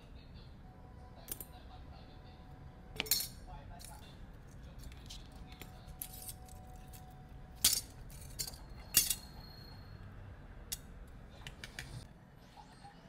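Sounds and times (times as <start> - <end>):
glass shards and tool clinking: 5.9 - 7.0, 7.6 - 9.6.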